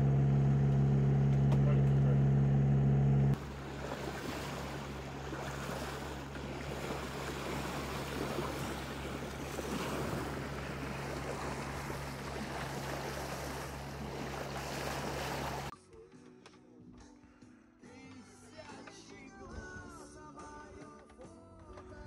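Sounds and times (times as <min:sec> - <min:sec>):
sea water rushing and splashing: 0:03.4 - 0:15.7.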